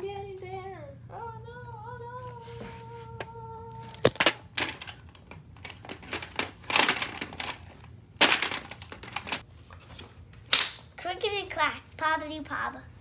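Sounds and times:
plastic toy track pieces clattering: 5.6 - 9.4.

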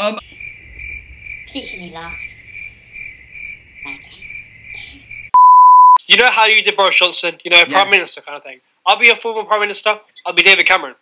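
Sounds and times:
crickets chirping: 0.2 - 5.4.

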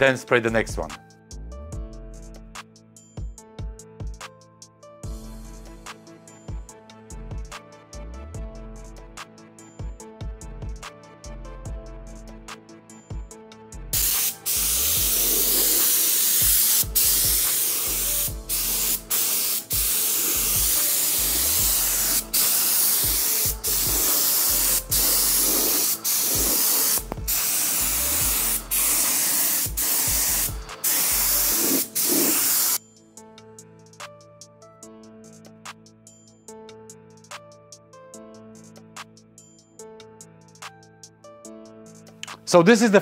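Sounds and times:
spray gun hissing: 14.0 - 32.8.

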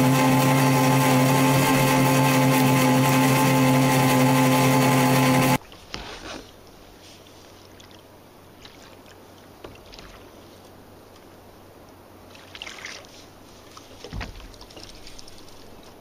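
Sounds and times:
water lapping against kayak hull: 5.6 - 11.2, 12.2 - 16.0
sharp splashes: 7.6 - 10.4, 12.3 - 15.9.

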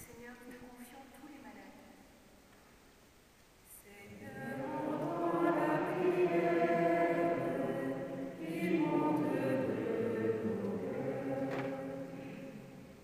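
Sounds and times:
choir chanting: 4.1 - 13.0.

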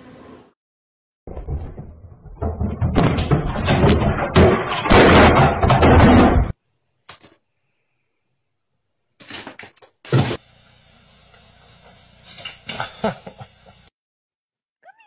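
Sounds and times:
loud distorted banging and clattering: 1.3 - 6.6.

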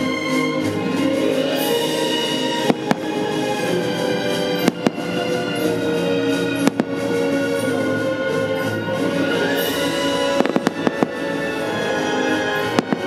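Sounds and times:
fireworks show music: 0.0 - 13.0
firework shells bursting: 2.6 - 3.6, 4.4 - 5.6, 6.6 - 7.3, 10.2 - 11.9, 12.6 - 13.0.

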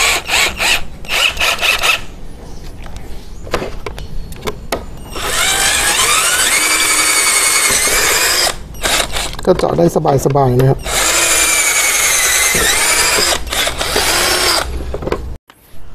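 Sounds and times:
cordless drill motor whine: 0.0 - 2.0, 5.1 - 9.4, 10.8 - 14.7
drill bit boring into wood: 0.0 - 2.0, 5.1 - 9.4, 10.8 - 14.7
drill handling clicks and rattles: 5.1 - 9.8, 10.9 - 14.7.

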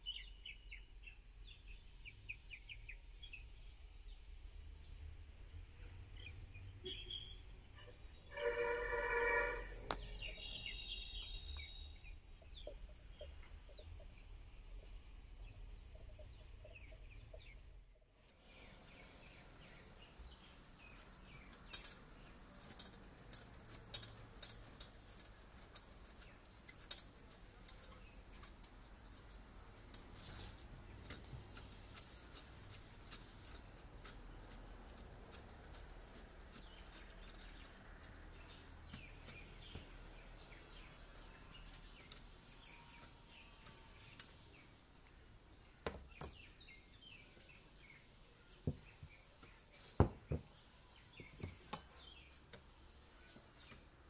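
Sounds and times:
horn-like tone: 8.3 - 9.9
clicks and taps on metal: 20.9 - 45.2, 51.2 - 52.7.

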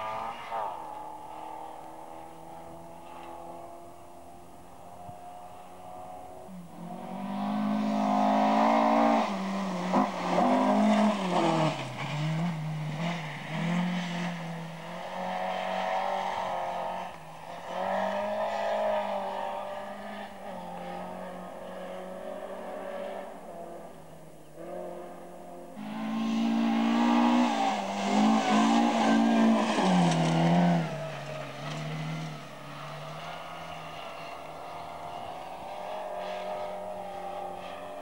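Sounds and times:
rally car engine at full throttle: 0.0 - 38.0.

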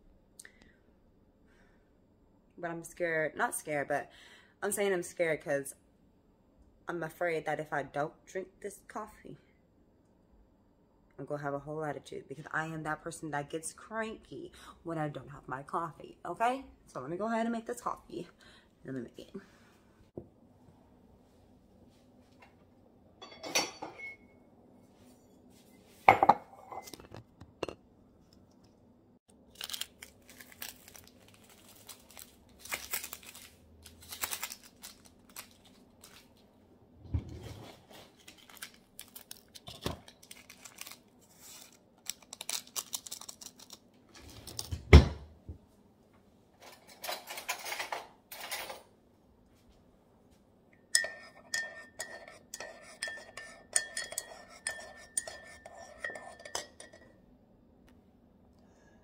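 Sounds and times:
faint steady hum: 8.1 - 37.3, 48.4 - 59.0
dishes and cutlery clinking: 23.2 - 24.3, 26.0 - 27.8, 50.9 - 57.2
rustling and handling: 29.5 - 36.6, 37.3 - 44.8.

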